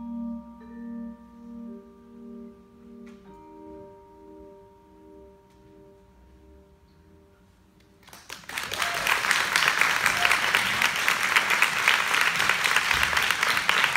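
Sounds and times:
vibraphone chord ringing: 0.0 - 7.5
audience applause: 8.0 - 13.9.

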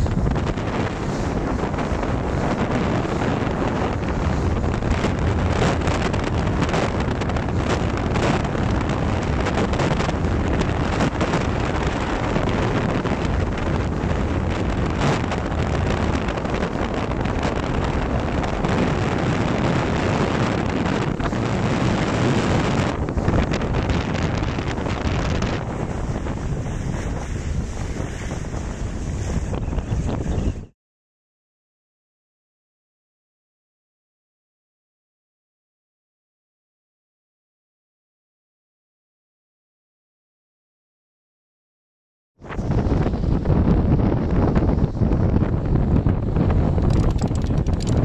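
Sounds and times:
water splashing along hull: 0.0 - 30.7
wind buffeting microphone: 0.0 - 30.8, 42.4 - 48.0.

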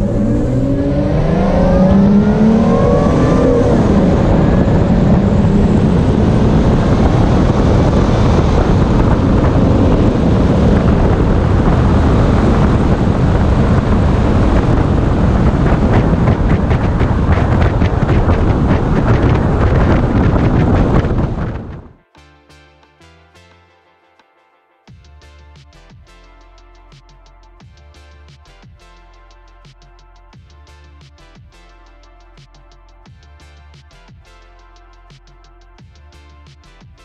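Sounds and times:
car engine at full throttle: 0.0 - 22.0
wind and road noise: 0.0 - 22.0.

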